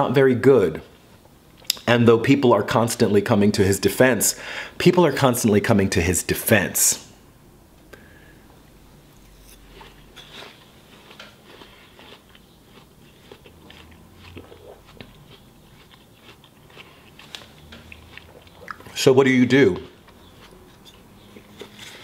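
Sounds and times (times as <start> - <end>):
person chewing watermelon: 9.2 - 22.0.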